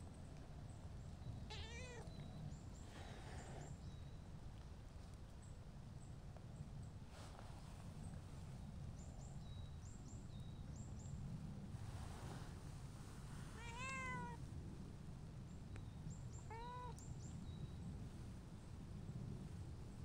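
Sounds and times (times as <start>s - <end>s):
cat meowing: 1.5s - 2.2s, 13.6s - 14.4s, 16.4s - 17.0s.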